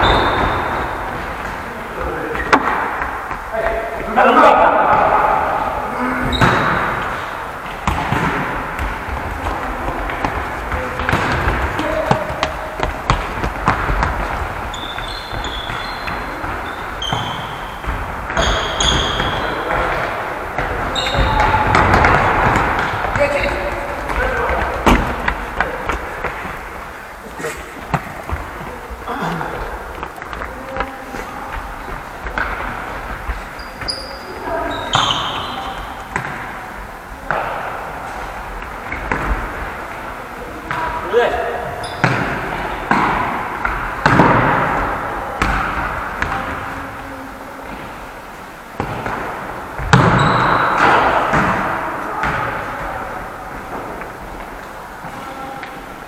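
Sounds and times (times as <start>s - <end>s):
shoe squeaks: 0.0s - 1.0s, 6.3s - 7.0s, 14.6s - 19.7s, 20.9s - 21.6s, 33.4s - 36.0s, 41.8s - 42.1s, 50.1s - 50.8s
trainers squeaking on floor: 0.0s - 2.6s, 6.0s - 7.5s, 9.6s - 26.4s, 27.4s - 36.1s, 41.8s - 42.1s, 50.0s - 51.1s
ball being kicked and bouncing: 7.7s - 26.6s.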